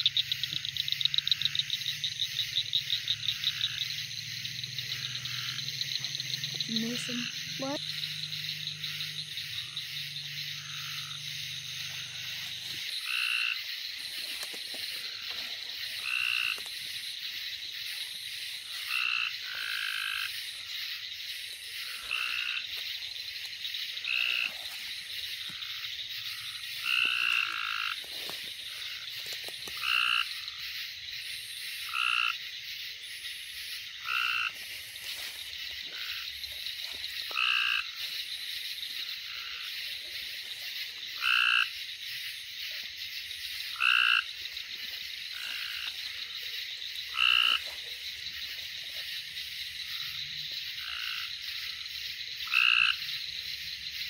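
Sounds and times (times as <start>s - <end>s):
high-pitched frog chorus: 0.0s - 54.0s.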